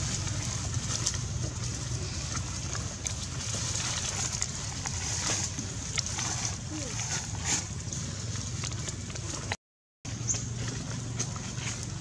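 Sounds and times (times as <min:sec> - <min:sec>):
outdoor rumble and hiss: 0:00.0 - 0:09.5.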